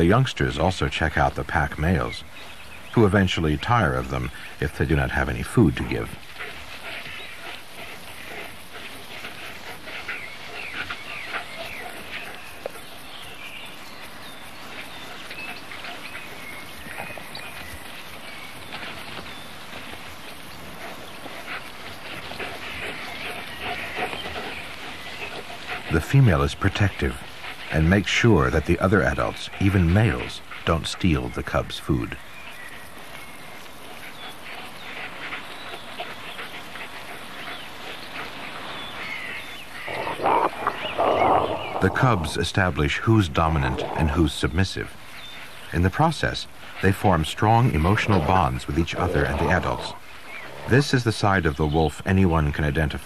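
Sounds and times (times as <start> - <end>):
steady hiss: 0.0 - 53.0
wolf cubs whimpering: 33.9 - 44.5, 47.4 - 50.8
harsh snarling: 39.8 - 44.6, 47.4 - 51.0.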